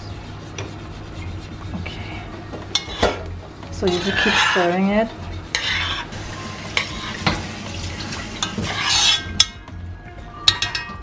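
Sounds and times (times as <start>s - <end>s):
spoon stirring rice in pot: 5.5s - 6.1s, 8.4s - 9.4s.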